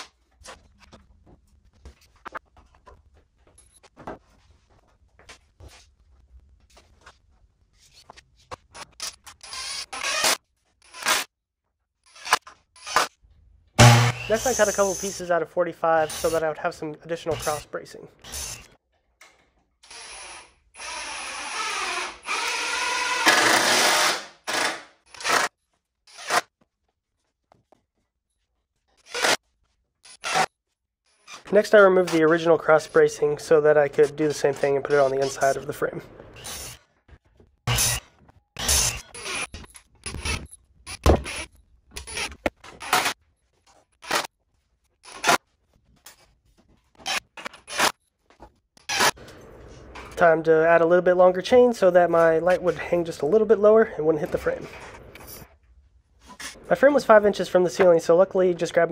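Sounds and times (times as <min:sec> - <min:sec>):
cordless drill driving screw: 0:09.0 - 0:11.2, 0:12.1 - 0:13.1, 0:19.8 - 0:25.5.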